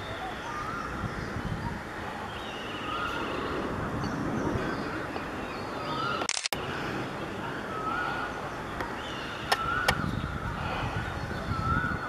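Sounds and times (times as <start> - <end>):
bird calling: 0.0 - 12.0
distant jet engine rumble: 0.0 - 12.0
sharp clicks: 6.2 - 6.6.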